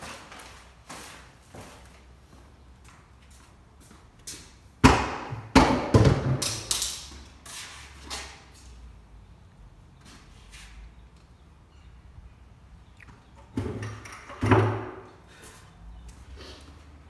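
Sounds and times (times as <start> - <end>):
loud thumps on concrete: 4.8 - 6.8.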